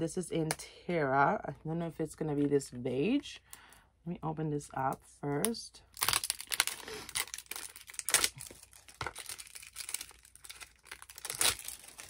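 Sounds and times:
packaging crinkling and tearing: 0:06.0 - 0:12.0.

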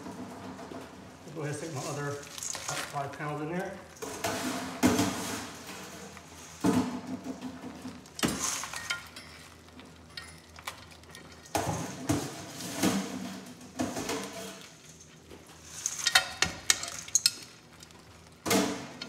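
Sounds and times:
shells clattering in a metal pan: 0:01.6 - 0:03.1, 0:08.1 - 0:11.9, 0:14.0 - 0:17.6.

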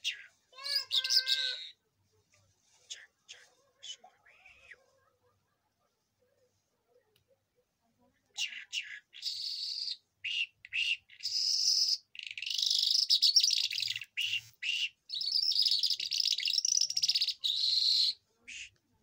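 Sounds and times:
lark singing: 0:08.4 - 0:18.7.

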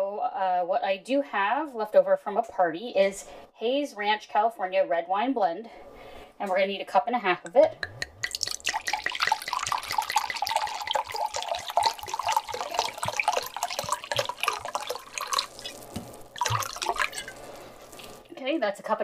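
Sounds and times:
wine pouring into a cup: 0:07.6 - 0:18.3.

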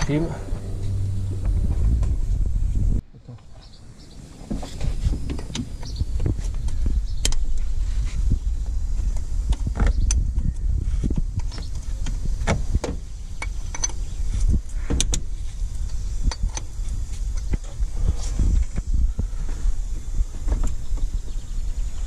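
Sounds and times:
continuous low rumble: 0:00.0 - 0:22.0.

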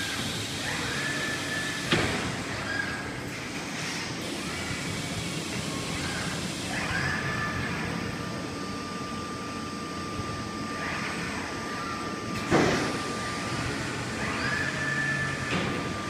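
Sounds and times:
machine hum with high tone: 0:00.0 - 0:16.0
servo drives whining: 0:10.0 - 0:16.0.

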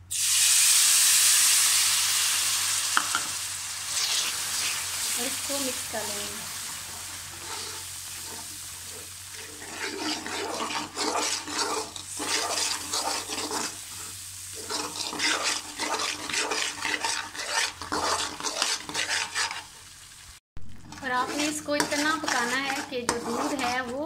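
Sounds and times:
milk sizzling and bubbling: 0:00.0 - 0:24.0
metal spoon scraping metal pan: 0:06.9 - 0:19.7, 0:20.9 - 0:24.0.

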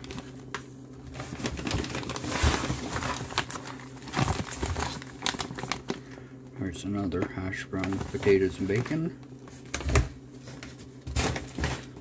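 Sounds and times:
plastic pouches rustling: 0:00.0 - 0:06.4, 0:07.0 - 0:12.0.

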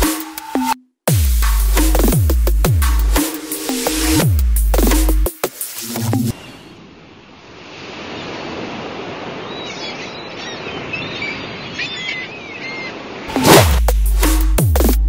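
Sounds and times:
sea surf washing on shore: 0:06.8 - 0:11.6.

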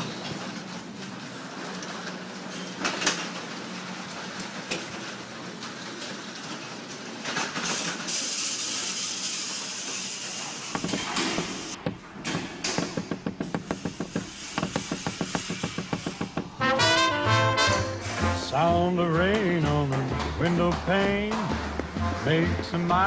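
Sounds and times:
hiss: 0:07.6 - 0:11.8
sharp knocks: 0:10.7 - 0:17.1
sharp quick taps: 0:10.8 - 0:16.7
wheeled stand rattling on floor: 0:10.8 - 0:16.7.

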